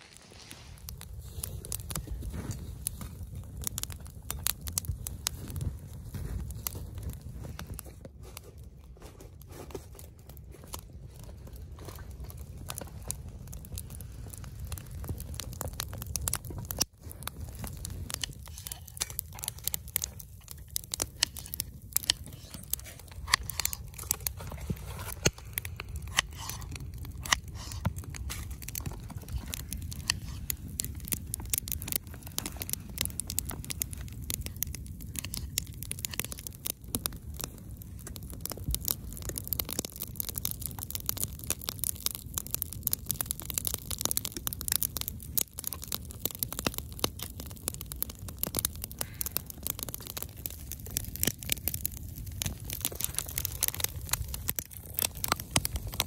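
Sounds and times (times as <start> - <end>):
campfire crackling and popping: 0.0 - 56.0
low fire rumble: 0.0 - 56.0.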